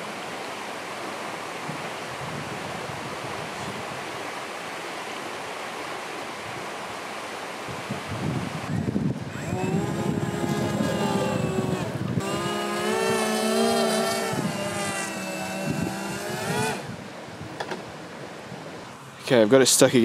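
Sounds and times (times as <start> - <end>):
electric propeller motors whining: 9.1 - 17.1.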